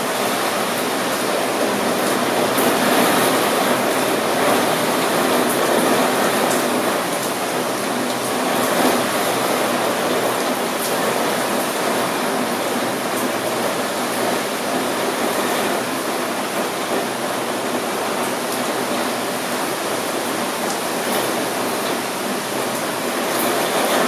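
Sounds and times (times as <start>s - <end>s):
steady rain falling: 0.0s - 24.0s.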